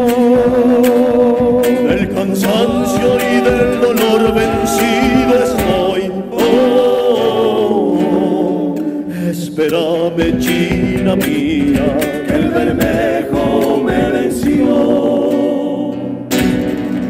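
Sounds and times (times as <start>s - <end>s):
bass drum: 0.0s - 7.0s, 10.2s - 15.2s
male vocal quartet singing: 0.0s - 16.4s
guitars: 0.0s - 17.0s.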